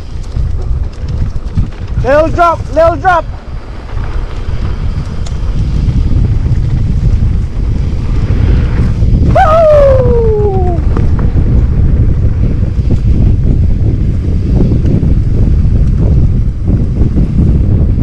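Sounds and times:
mountain bike rolling on trail: 0.0s - 18.0s
wind buffeting microphone: 0.0s - 18.0s.

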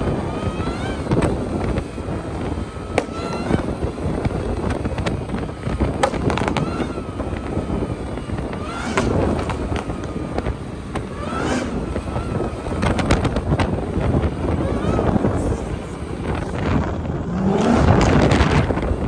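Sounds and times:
cars running: 0.0s - 19.0s
wind on microphone: 0.0s - 19.0s
sharp pops: 2.9s - 7.0s.

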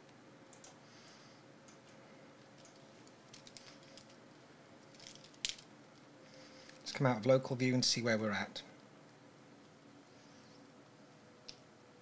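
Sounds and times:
computer keyboard and mouse clicks: 0.5s - 0.8s.

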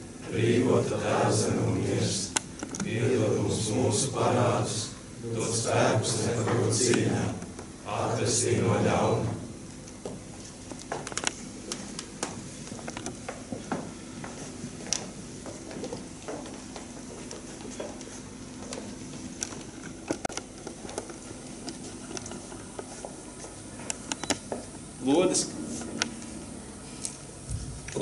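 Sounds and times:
faint steady hall hum: 0.0s - 28.0s
footsteps on wooden floor: 12.2s - 19.3s.

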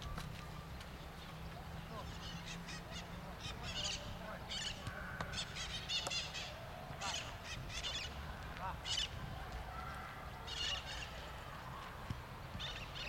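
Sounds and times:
harsh repeated bird calls: 1.9s - 11.3s.

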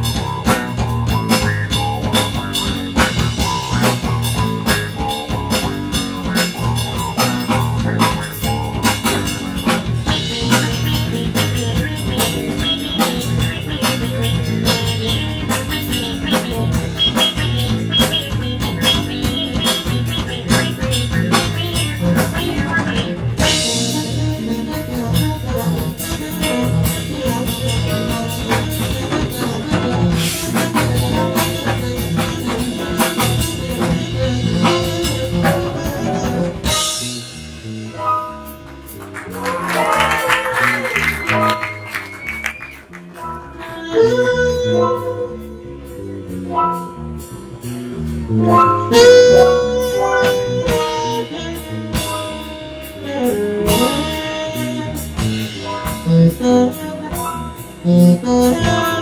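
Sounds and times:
electric bassoon with effects: 0.0s - 59.0s
jazz-rock band playing: 0.0s - 59.0s.

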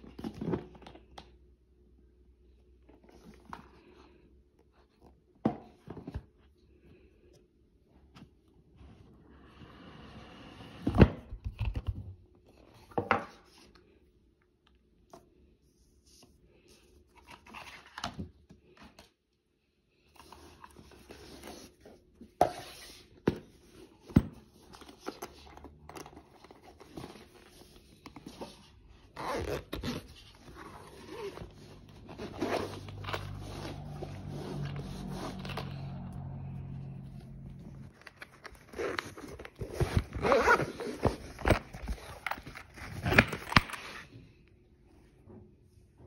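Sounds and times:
zipper pulled open: 29.0s - 36.4s, 37.2s - 44.1s.

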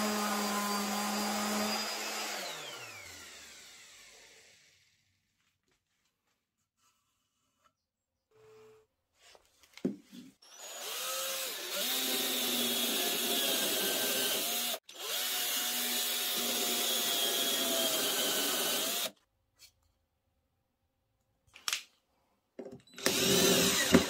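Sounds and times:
cordless drill boring into wood: 0.0s - 4.8s, 10.4s - 19.2s, 23.0s - 24.0s.

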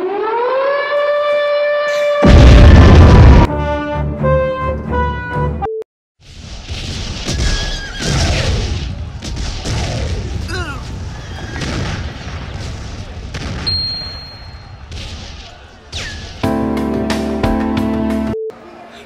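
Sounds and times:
rumbling booms: 2.2s - 3.5s.

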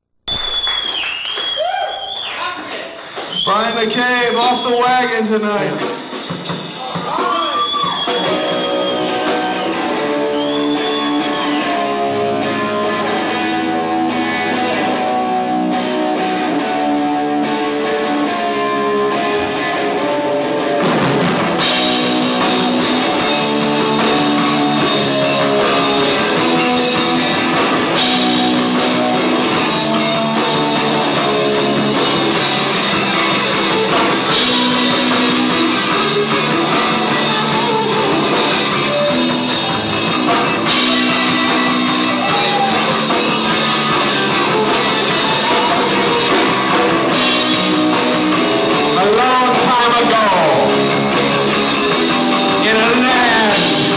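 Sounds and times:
drums and cymbals: 3.5s - 12.0s, 20.8s - 53.9s
electric guitar chords: 8.1s - 53.9s.

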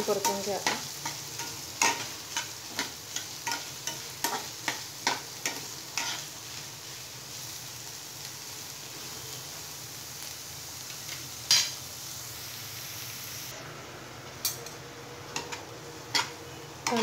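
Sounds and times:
onions sizzling in oil: 0.0s - 17.0s
spatula scraping a pan: 0.3s - 6.4s.

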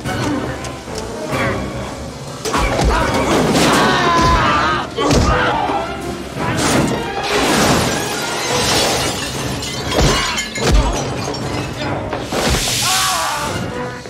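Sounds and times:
dishes crashing and shattering: 6.6s - 13.1s.

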